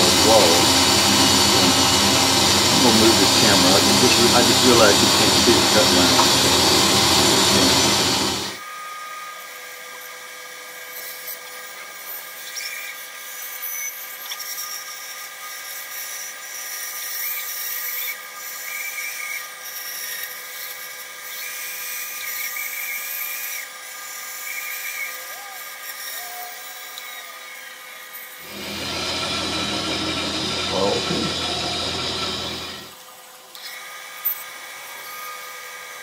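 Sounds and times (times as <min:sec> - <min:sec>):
band saw cutting wood: 0:00.0 - 0:08.6, 0:27.5 - 0:33.0.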